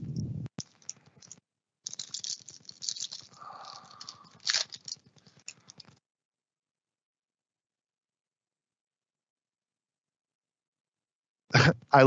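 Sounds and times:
foil card pack crinkling: 0.6 - 5.9.

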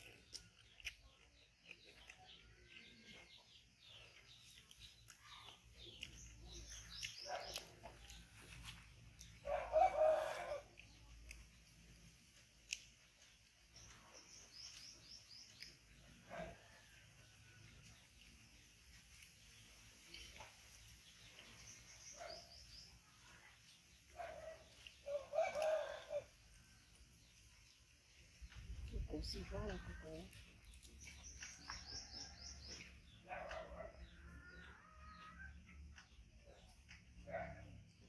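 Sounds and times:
small birds chirping: 0.0 - 38.0
rooster crowing: 9.5 - 10.6, 25.1 - 26.3.

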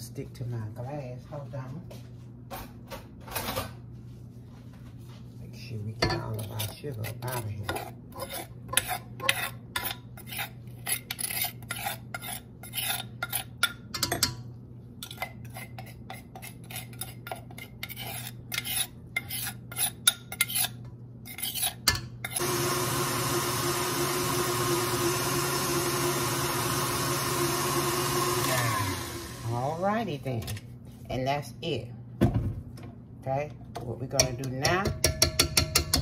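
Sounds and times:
stand mixer running: 22.4 - 29.6.

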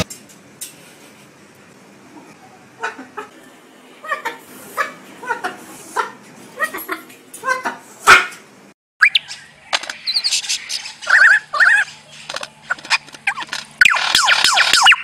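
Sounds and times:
lyrebird calling: 9.0 - 13.6.

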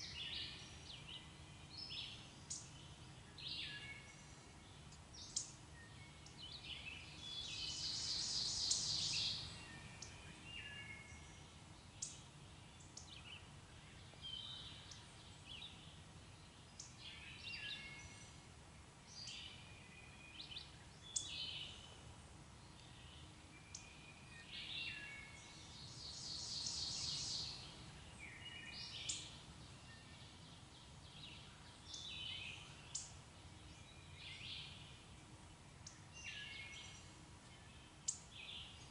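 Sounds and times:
songbirds chirping: 0.0 - 38.9.

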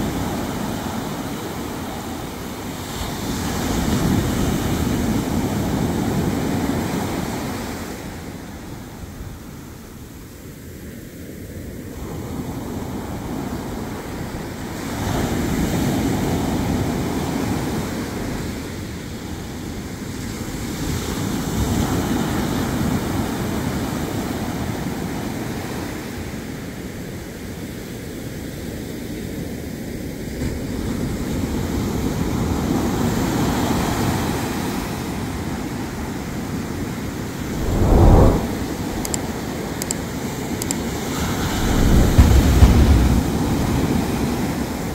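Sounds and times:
ocean surf breaking on beach: 41.3 - 43.9.

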